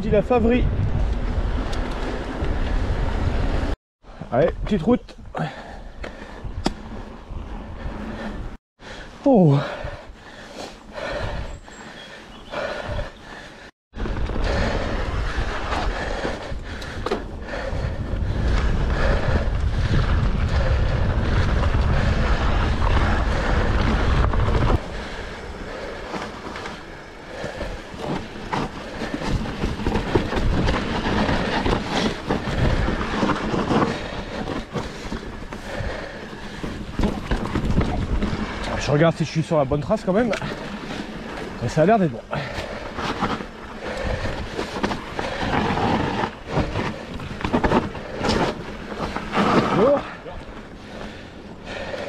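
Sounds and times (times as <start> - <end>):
wind rumbling on microphone: 0.0 - 8.6, 9.6 - 11.7, 12.5 - 52.0
bike rattling and clicking: 9.6 - 52.0
tyres rolling over leaves and dirt: 12.4 - 52.0.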